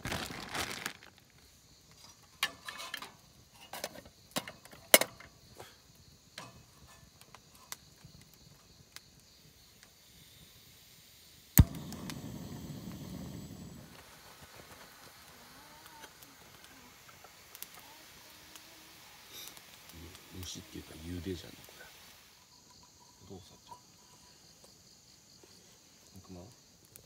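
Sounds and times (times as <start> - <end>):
stove igniter click: 11.6 - 13.9
gas burner rushing: 11.6 - 15.4.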